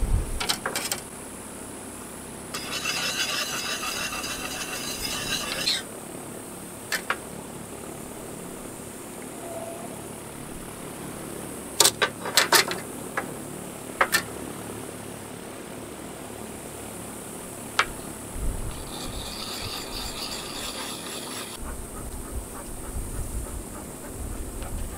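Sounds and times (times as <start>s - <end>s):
tool rasping scrape: 2.5s - 5.9s, 18.7s - 21.6s.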